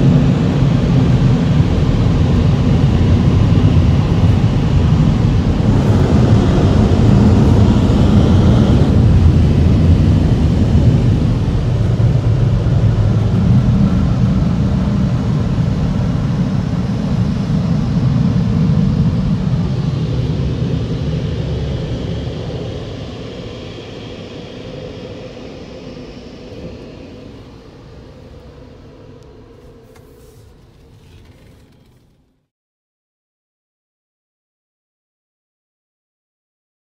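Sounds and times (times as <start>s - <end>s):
air dryer blowers rushing: 0.0s - 19.8s.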